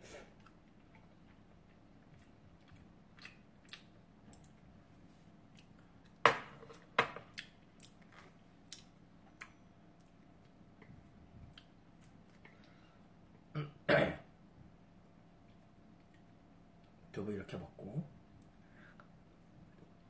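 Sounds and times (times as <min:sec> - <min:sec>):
person chewing: 0:00.1 - 0:04.7, 0:07.3 - 0:12.8
tableware knocking: 0:06.3 - 0:07.2.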